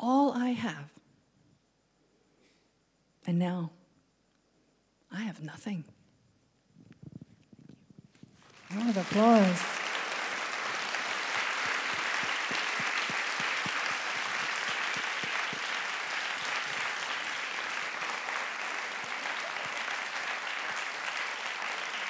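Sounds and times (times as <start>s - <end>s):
audience applauding: 8.4s - 22.0s.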